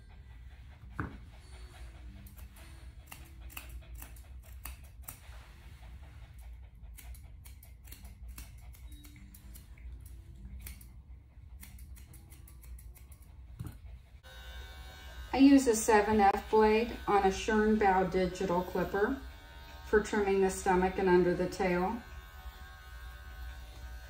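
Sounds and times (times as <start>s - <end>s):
scissors snipping dog fur: 2.0s - 13.9s, 15.6s - 24.0s.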